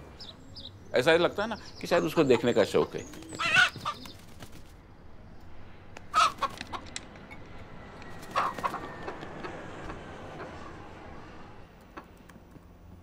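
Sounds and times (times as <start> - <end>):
rooster clucking: 8.3 - 10.8.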